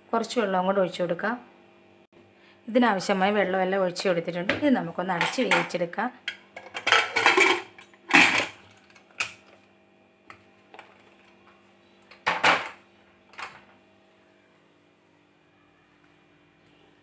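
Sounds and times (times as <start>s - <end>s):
metal lid scraping and clanking: 6.6s - 8.5s.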